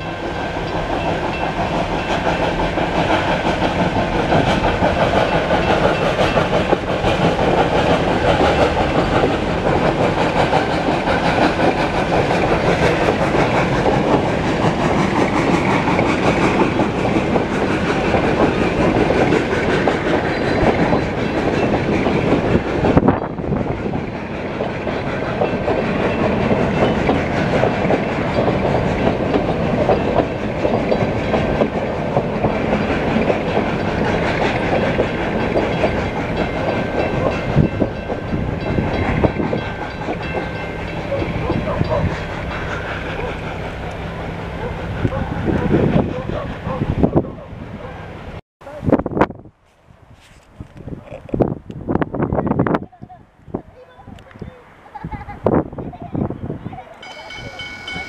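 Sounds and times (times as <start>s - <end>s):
train wheels clicking over rail joints: 0.0s - 46.8s
level crossing bells ringing: 57.0s - 58.0s.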